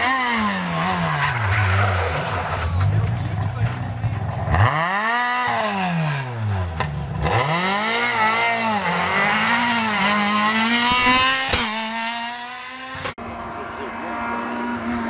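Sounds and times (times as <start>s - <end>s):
rally car engine revving: 0.0s - 15.0s
sharp crack: 10.7s - 12.0s.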